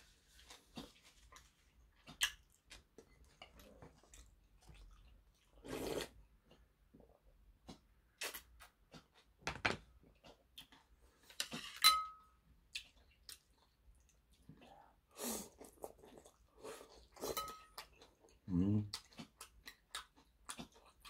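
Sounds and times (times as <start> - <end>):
slurping and chewing: 0.2 - 9.4, 10.1 - 11.8, 12.7 - 21.0
metal chopsticks clinking on bowl: 11.8 - 12.2
ceramic dish clink: 11.8 - 12.3.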